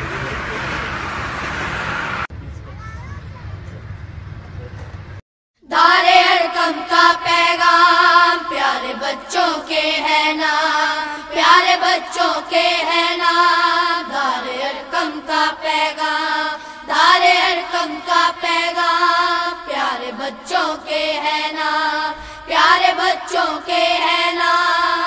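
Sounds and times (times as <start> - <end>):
high voice singing school song: 5.6 - 25.0.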